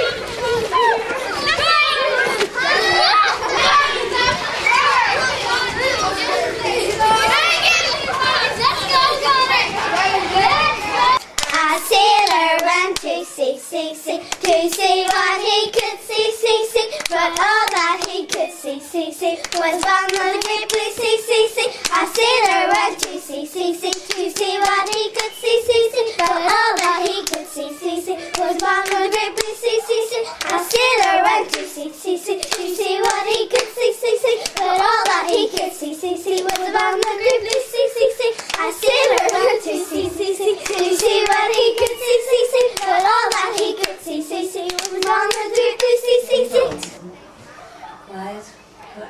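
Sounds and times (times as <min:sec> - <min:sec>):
girls singing: 0:10.0 - 0:47.0
hand clapping: 0:11.2 - 0:11.6, 0:19.4 - 0:21.1, 0:21.8 - 0:23.2, 0:23.9 - 0:25.4, 0:26.2 - 0:27.5, 0:28.3 - 0:29.6, 0:30.4 - 0:31.8, 0:32.4 - 0:33.8, 0:34.4 - 0:37.7, 0:38.3 - 0:39.7, 0:40.6 - 0:44.0, 0:44.7 - 0:46.0.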